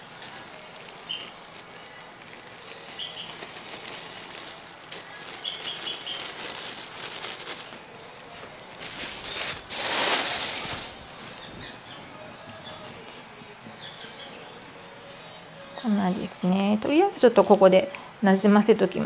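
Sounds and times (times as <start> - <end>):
plastic bag rustling: 0.0 - 13.4.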